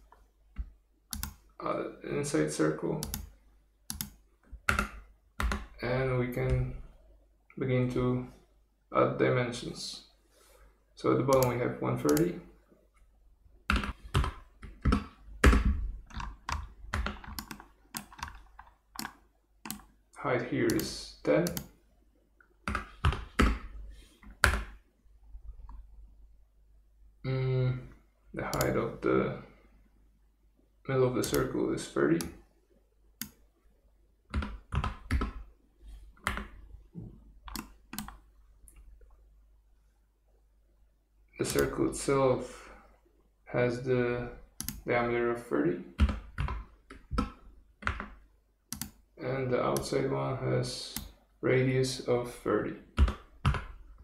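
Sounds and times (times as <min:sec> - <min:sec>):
mouse clicks: 0:20.7 - 0:21.7.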